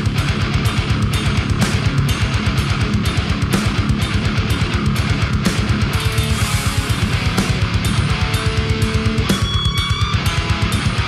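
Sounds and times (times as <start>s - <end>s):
hard rock music: 0.0s - 11.0s.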